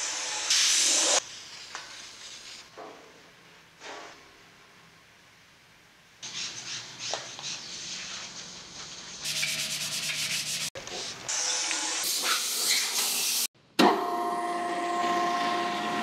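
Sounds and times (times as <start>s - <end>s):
hiss: 0.0s - 2.7s, 12.0s - 13.5s.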